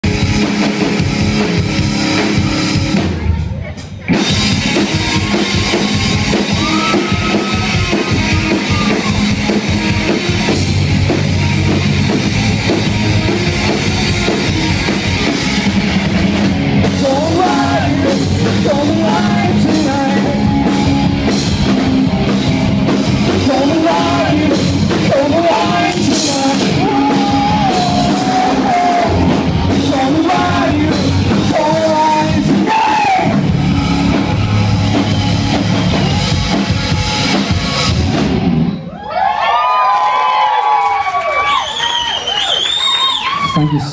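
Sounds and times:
drum kit: 0:00.0 - 0:38.9
electric guitar: 0:00.0 - 0:38.9
bass guitar: 0:00.0 - 0:39.5
person singing: 0:16.8 - 0:20.8, 0:23.2 - 0:33.4.

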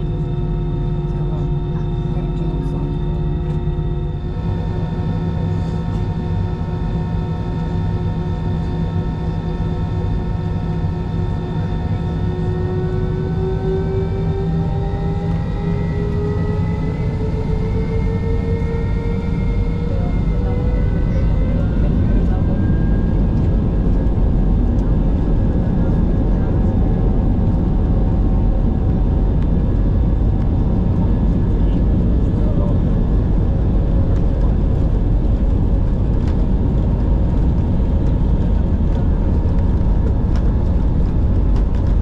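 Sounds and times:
jet engine whine: 0:00.0 - 0:42.0
jet engines rumbling: 0:00.0 - 0:42.0.

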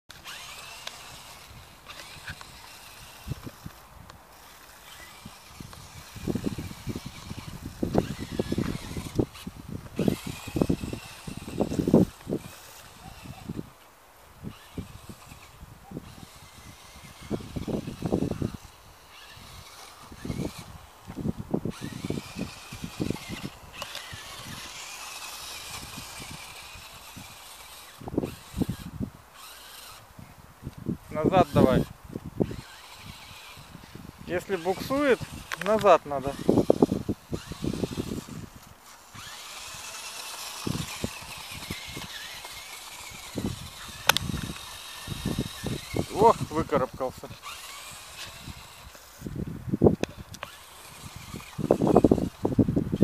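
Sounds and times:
small electric motor whining: 0:00.1 - 0:53.0
steady outdoor hiss: 0:00.1 - 0:53.0
wind thumps on microphone: 0:05.6 - 0:12.5.

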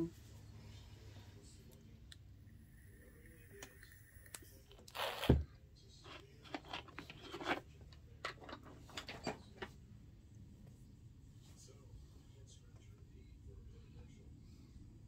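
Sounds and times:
light clicks and scrapes: 0:06.0 - 0:09.8.

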